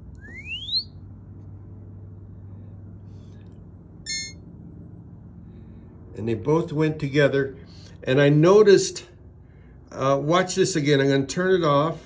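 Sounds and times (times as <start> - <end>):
steady low hum: 0.0 - 12.0
electronic rising chirp: 0.2 - 1.0, 4.1 - 4.4
short electronic beep: 4.1 - 4.4.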